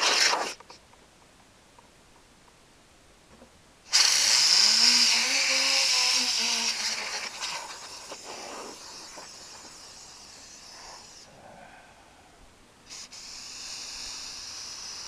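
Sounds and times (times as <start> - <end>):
compressed air hiss: 0.0 - 0.6, 3.9 - 15.0.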